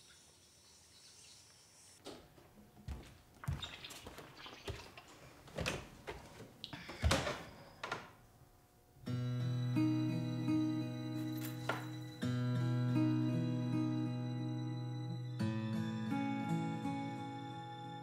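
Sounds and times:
acoustic guitar music: 0:09.0 - 0:18.0.

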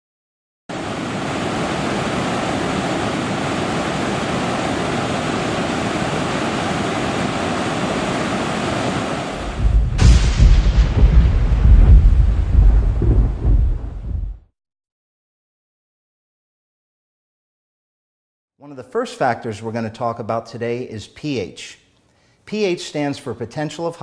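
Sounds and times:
waterfall rushing: 0:00.7 - 0:10.2
thunder rumble and crack: 0:09.3 - 0:14.5.

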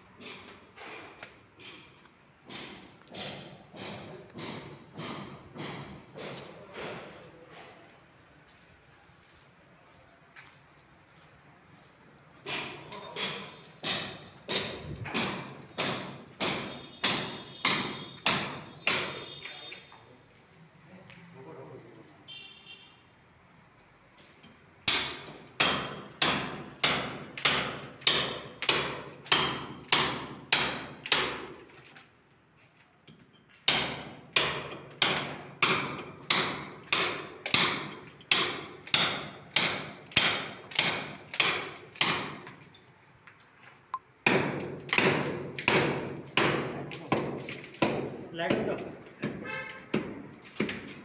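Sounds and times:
hammer striking steel chisel: 0:00.2 - 0:07.3, 0:12.4 - 0:19.3, 0:24.3 - 0:31.7, 0:33.1 - 0:42.7, 0:44.2 - 0:51.0.

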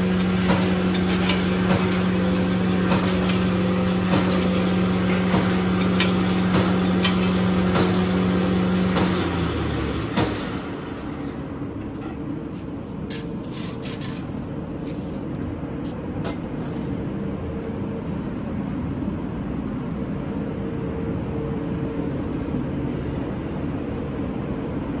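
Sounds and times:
wire cutting machine running: 0:00.0 - 0:11.6.

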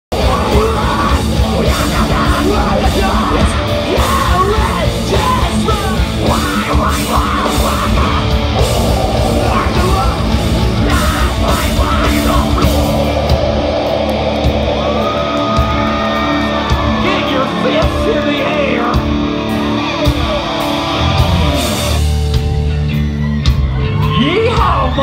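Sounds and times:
drums: 0:00.0 - 0:25.0
heavy rock band playing: 0:00.0 - 0:25.0
person shouting and singing: 0:00.1 - 0:13.7, 0:14.7 - 0:21.7, 0:23.7 - 0:25.0
distorted electric guitars: 0:00.1 - 0:25.0.

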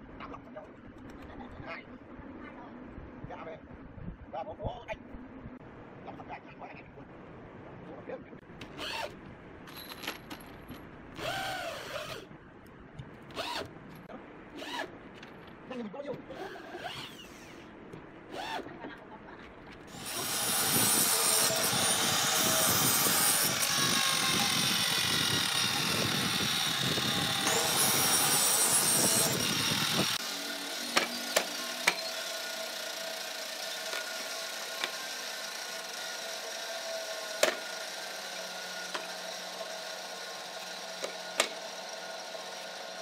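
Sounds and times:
miter saw cutting wood: 0:13.3 - 0:13.7, 0:16.3 - 0:17.7, 0:19.9 - 0:43.0.

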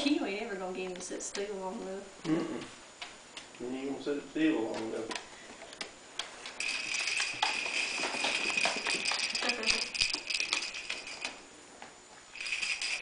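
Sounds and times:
small bell jingling: 0:06.6 - 0:11.5, 0:12.3 - 0:13.0.

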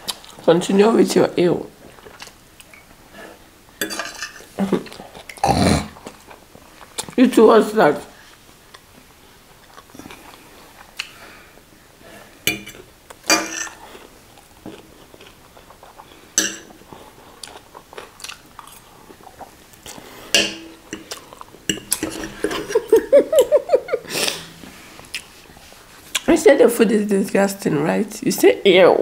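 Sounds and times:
forks clinking on plates: 0:03.8 - 0:04.5, 0:16.4 - 0:16.7
chewing noodles: 0:13.8 - 0:20.2.

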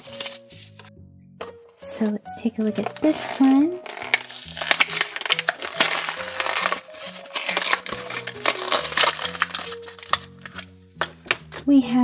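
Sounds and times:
cardboard tearing: 0:00.0 - 0:00.8, 0:02.8 - 0:11.5
plastic blister pack crackling: 0:00.0 - 0:00.8, 0:02.7 - 0:11.6
background music with low notes: 0:00.0 - 0:12.0.

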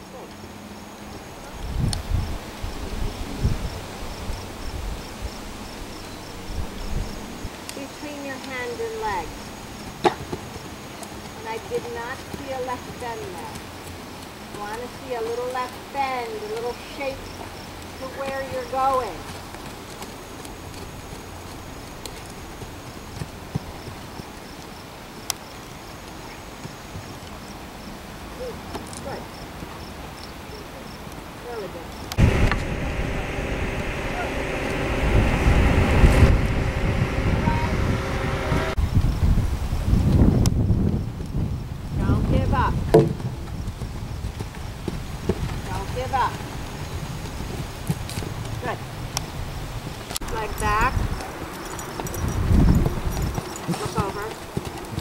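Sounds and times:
insects chirping: 0:00.0 - 0:55.0
horse hoofbeats on sand: 0:09.8 - 0:24.8, 0:43.0 - 0:48.8, 0:50.3 - 0:55.0
dull low thumps: 0:32.2 - 0:45.6.

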